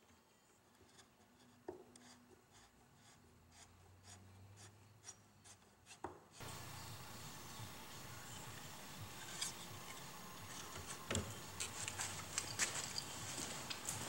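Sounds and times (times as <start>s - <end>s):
screwdriver scratching wood: 0.8s - 6.7s, 7.6s - 13.1s
loud steady hiss: 6.4s - 12.4s.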